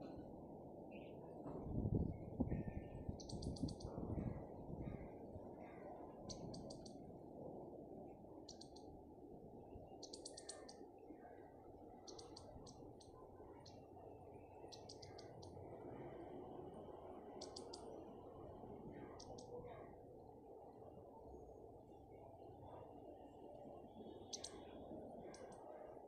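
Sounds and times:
small birds chirping: 0:02.3 - 0:07.0, 0:08.4 - 0:08.9, 0:09.8 - 0:15.8, 0:17.2 - 0:18.2, 0:18.8 - 0:20.0, 0:21.3 - 0:25.9.

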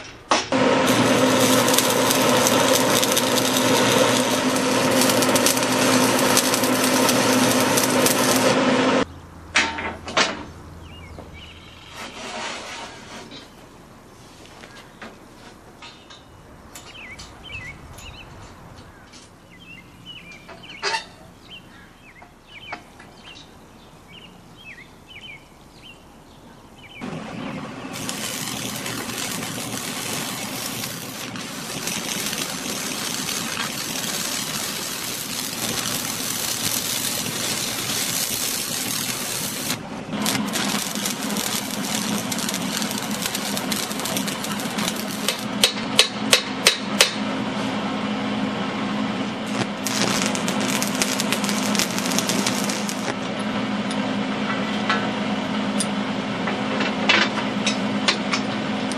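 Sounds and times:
arc welder crackling hiss: 0:00.0 - 0:09.1, 0:27.0 - 0:47.2, 0:49.4 - 0:53.3
welder low hum: 0:00.5 - 0:09.1, 0:27.0 - 0:56.6
small birds chirping: 0:10.8 - 0:12.0, 0:15.9 - 0:45.5.

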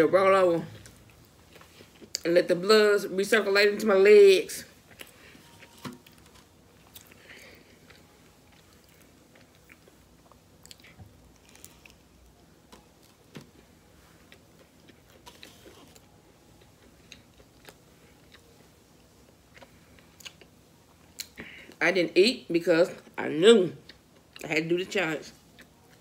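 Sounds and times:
biting and chewing food: 0:04.8 - 0:21.5.

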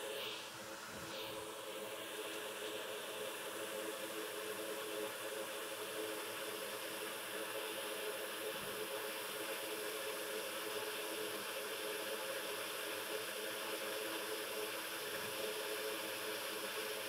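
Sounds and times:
hot air station airflow hiss: 0:00.0 - 0:08.5.

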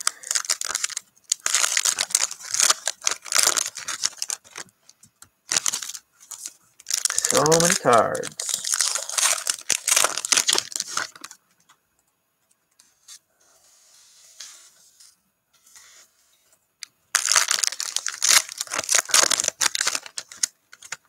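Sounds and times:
foil wrappers crinkling: 0:00.0 - 0:04.7, 0:05.4 - 0:11.4, 0:17.1 - 0:21.0
faint handling sounds: 0:10.5 - 0:16.9.

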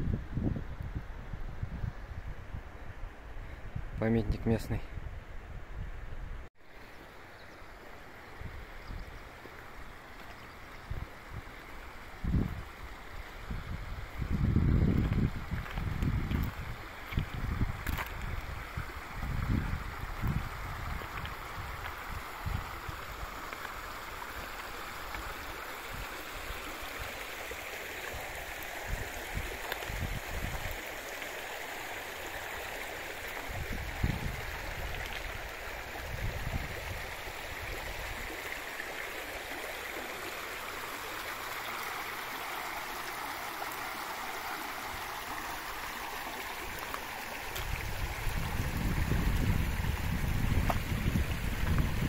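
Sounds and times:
wind buffeting microphone: 0:00.0 - 0:06.5, 0:10.8 - 0:23.4, 0:28.2 - 0:30.8, 0:33.4 - 0:38.3, 0:46.5 - 0:52.0
river rushing over stones: 0:06.6 - 0:52.0.

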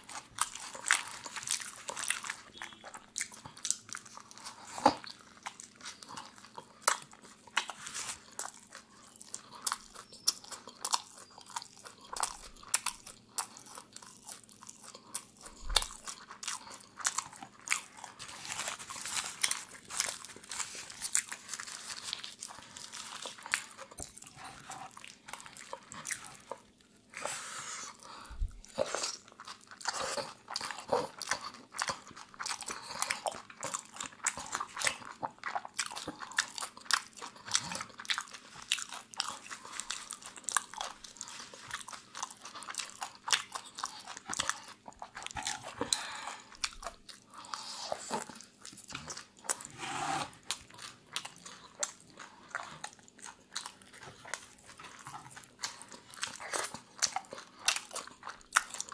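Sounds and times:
crunching and chewing: 0:00.0 - 0:58.9
paper wrapper crinkling: 0:18.2 - 0:23.6.

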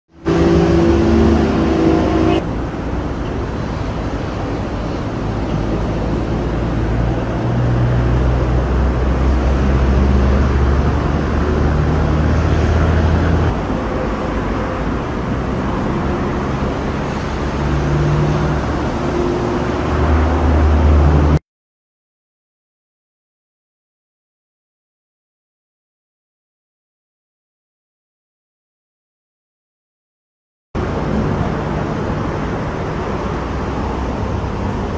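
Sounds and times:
low engine rumble: 0:00.2 - 0:21.4, 0:30.8 - 0:34.9.

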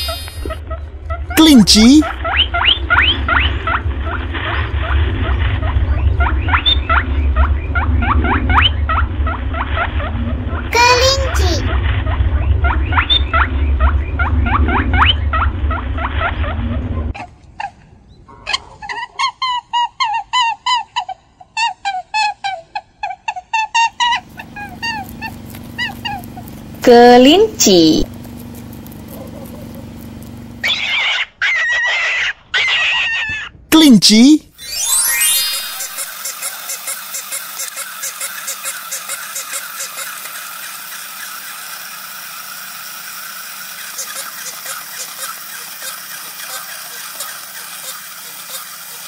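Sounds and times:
small motor whirring: 0:00.0 - 0:00.6, 0:24.0 - 0:31.2, 0:34.5 - 0:49.0
toy mechanism clicking: 0:34.6 - 0:49.0.

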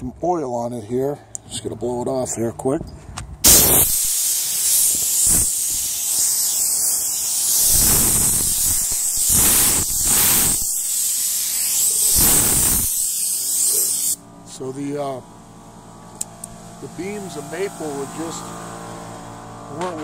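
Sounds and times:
compressed air hissing from blow gun: 0:03.4 - 0:14.2.

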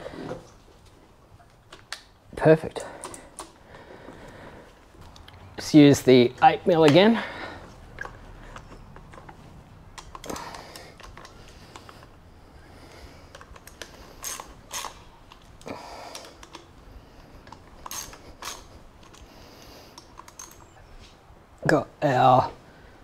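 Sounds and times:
socket ratchet clicking: 0:07.9 - 0:12.1, 0:13.2 - 0:16.7, 0:17.4 - 0:20.7.

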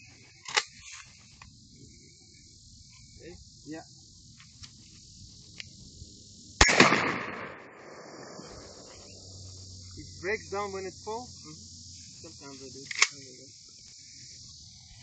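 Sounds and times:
insects buzzing: 0:00.0 - 0:15.0
shotgun shot echoing: 0:06.6 - 0:08.8.

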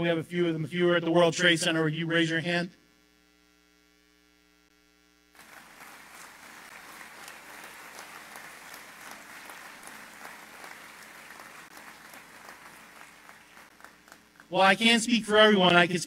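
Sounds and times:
faint steady hum: 0:00.0 - 0:16.0
crowd applauding: 0:05.4 - 0:14.6.

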